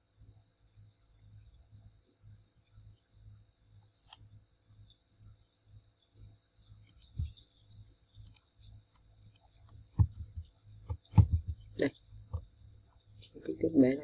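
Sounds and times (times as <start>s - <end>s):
faint low hum: 0.0s - 14.0s
computer mouse clicking: 4.0s - 4.3s, 6.8s - 12.5s
low thumps: 9.9s - 12.5s.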